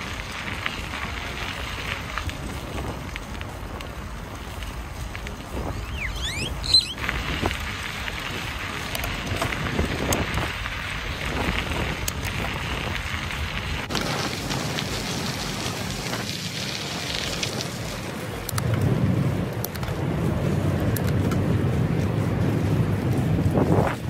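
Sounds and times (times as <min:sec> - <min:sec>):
bicycle tyres rolling on gravel: 0:00.0 - 0:24.0
wind on microphone: 0:05.4 - 0:07.6, 0:18.6 - 0:24.0
sharp high squeak: 0:05.8 - 0:07.0.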